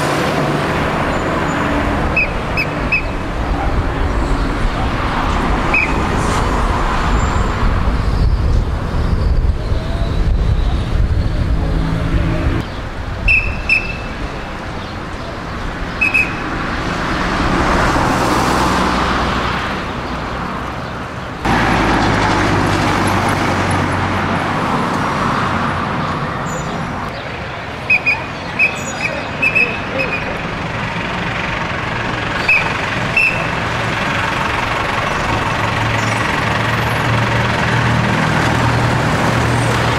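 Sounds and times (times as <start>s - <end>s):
street traffic noise: 0.0s - 39.9s
sharp whistle blasts: 2.1s - 3.2s, 5.7s - 6.0s, 13.3s - 14.2s, 16.0s - 16.5s, 27.9s - 30.3s, 32.4s - 33.5s.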